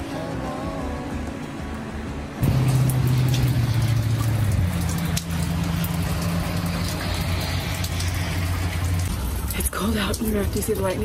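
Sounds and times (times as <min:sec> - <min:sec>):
faint background music: 0:00.0 - 0:04.0, 0:09.2 - 0:11.0
rain falling: 0:02.4 - 0:11.0.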